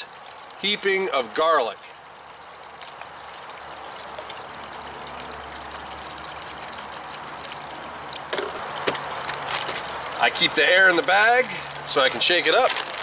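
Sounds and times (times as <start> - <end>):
water trickling: 0.0 - 13.0
plastic bag rustling: 9.1 - 10.0, 11.4 - 13.0.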